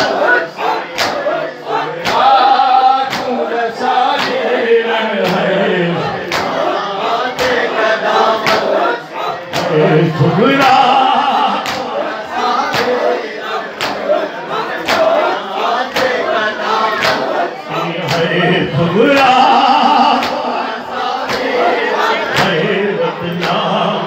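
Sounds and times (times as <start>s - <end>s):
men chanting a lament: 0.0s - 24.0s
rhythmic chest-beating: 0.0s - 24.0s
lead voice on microphone: 3.3s - 6.4s, 9.4s - 12.0s, 17.6s - 21.4s, 22.0s - 24.0s.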